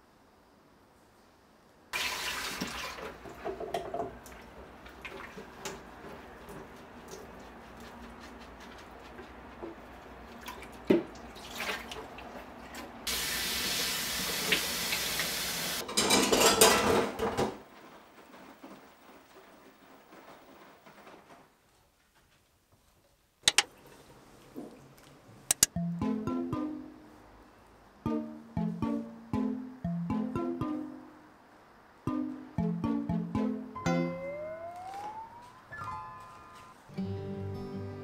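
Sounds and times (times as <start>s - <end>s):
tap running and water splashing: 2.0s - 7.5s, 13.1s - 15.8s.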